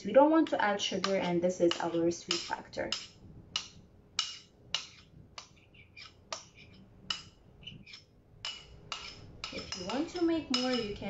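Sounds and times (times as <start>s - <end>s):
spoon clinking on glass cup: 8.5s - 11.0s.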